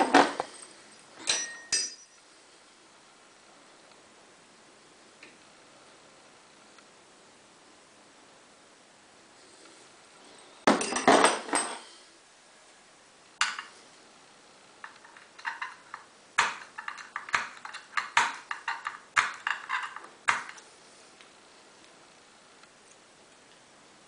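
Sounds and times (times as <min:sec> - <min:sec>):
lock picks clicking on metal: 0:14.8 - 0:20.6.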